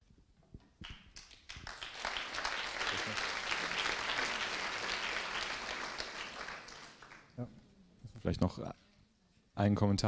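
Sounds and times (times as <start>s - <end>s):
audience applauding: 0.8s - 7.4s.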